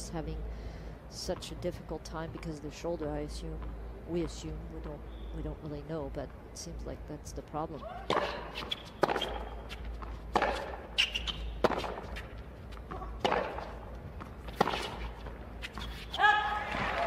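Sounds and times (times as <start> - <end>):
stadium background hum: 0.0 - 17.0
rackets striking tennis ball: 7.8 - 17.0.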